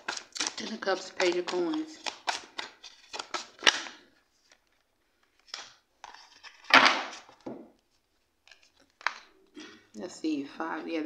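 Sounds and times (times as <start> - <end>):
cards snapping: 0.0 - 4.0
cards slapping and rustling: 0.0 - 9.3.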